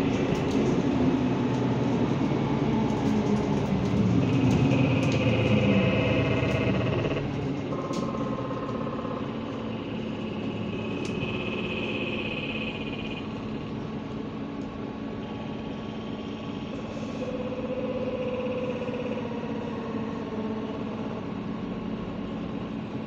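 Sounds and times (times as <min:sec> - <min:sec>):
bus engine and drivetrain: 0:00.0 - 0:23.0
road rumble: 0:00.0 - 0:23.0
whining tones shifting pitch: 0:04.2 - 0:13.9, 0:15.2 - 0:21.6.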